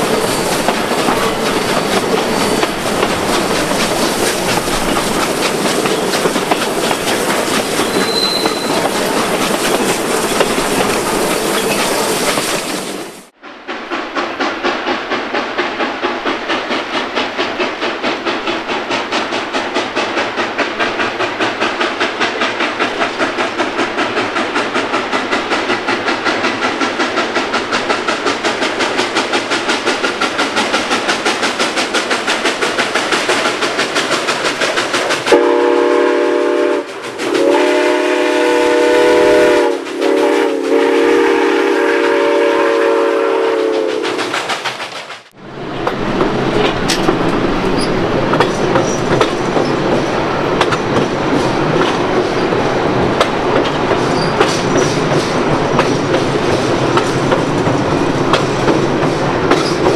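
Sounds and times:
steam locomotive chuffing: 0:00.0 - 0:59.9
steam whistle blasts: 0:07.8 - 0:08.8, 0:35.3 - 0:44.2.

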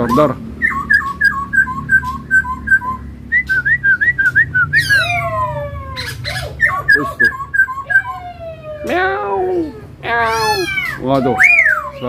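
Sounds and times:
bird singing whistles: 0:00.0 - 0:08.2, 0:11.3 - 0:12.0.

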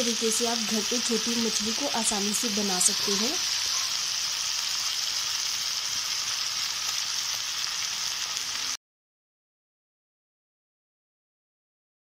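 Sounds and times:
fish sizzling in oil: 0:00.0 - 0:08.8.

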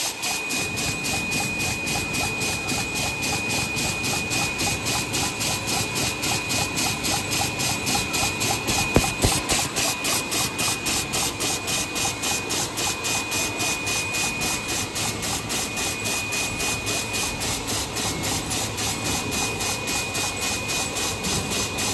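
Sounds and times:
high machine whine: 0:00.0 - 0:21.9
machine hissing pulse: 0:00.0 - 0:21.9
sharp click: 0:08.6 - 0:09.8.

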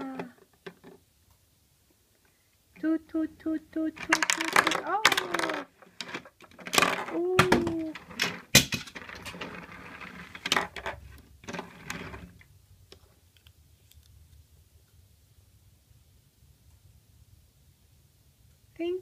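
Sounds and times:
plastic bricks clicking and clattering: 0:04.0 - 0:12.5
plastic wheels rolling on table: 0:04.0 - 0:12.5.

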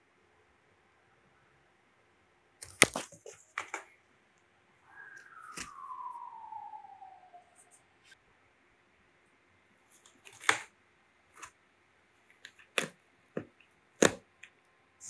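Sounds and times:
descending whistle-like tone: 0:04.8 - 0:08.2.

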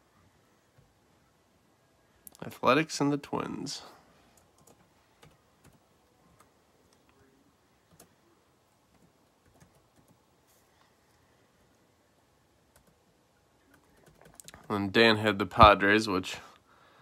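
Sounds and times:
keyboard typing clicks: 0:13.7 - 0:14.7.

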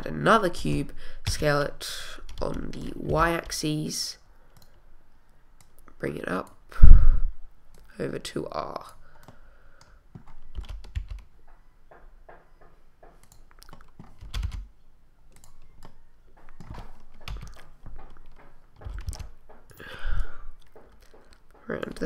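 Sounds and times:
keyboard keystrokes: 0:09.2 - 0:11.3, 0:13.2 - 0:14.7, 0:15.3 - 0:19.8.

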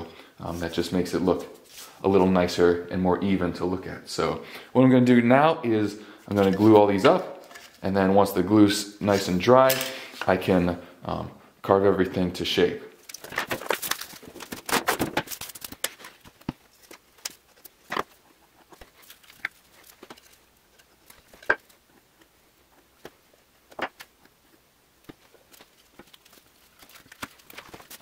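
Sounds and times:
plastic film crinkling: 0:13.0 - 0:22.0, 0:25.0 - 0:28.0.

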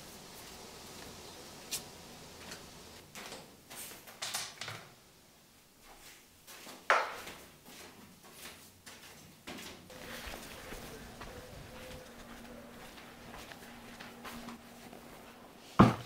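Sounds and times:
footsteps on tiles: 0:05.8 - 0:16.0.

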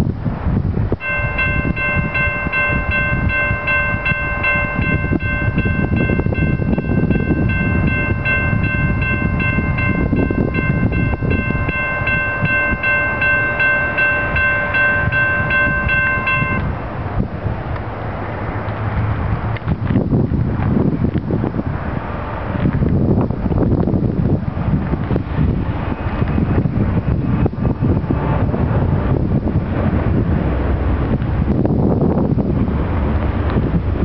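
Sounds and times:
wind buffeting microphone: 0:00.0 - 0:34.0
railroad crossing bell ringing: 0:01.0 - 0:16.8.

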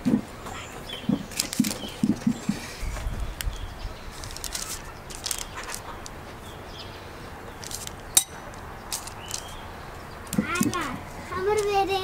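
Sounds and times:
baking paper rustling: 0:01.1 - 0:03.4, 0:04.0 - 0:06.4, 0:07.6 - 0:09.6, 0:10.3 - 0:12.0.

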